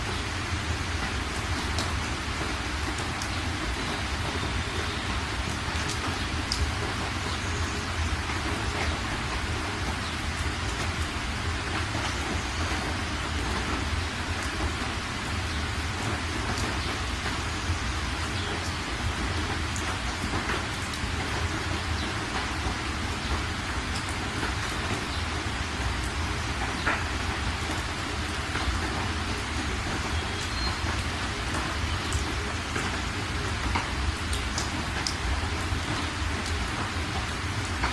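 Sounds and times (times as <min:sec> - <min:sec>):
steady rain falling: 0:00.0 - 0:37.9.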